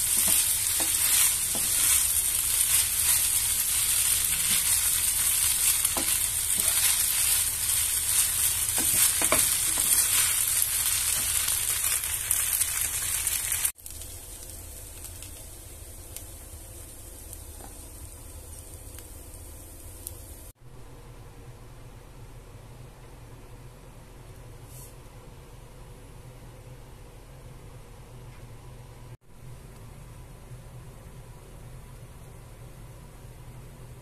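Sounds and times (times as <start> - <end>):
wooden spatula scraping a pan: 0.0 - 11.8
noodles sizzling in a pan: 0.0 - 20.5.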